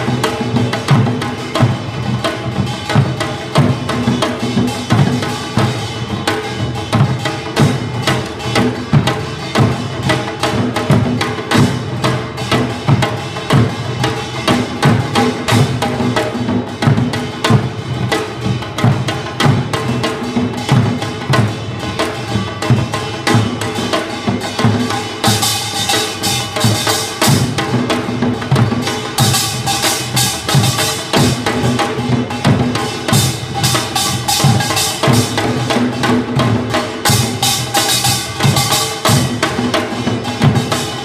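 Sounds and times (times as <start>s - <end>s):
drums in fast rhythm: 0.0s - 41.0s.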